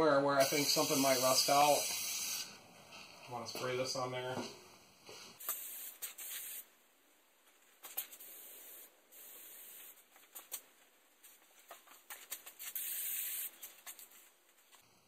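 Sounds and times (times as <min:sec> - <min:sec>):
aerosol can spraying: 0:00.4 - 0:02.6, 0:05.4 - 0:06.7, 0:07.8 - 0:10.5, 0:12.4 - 0:14.0.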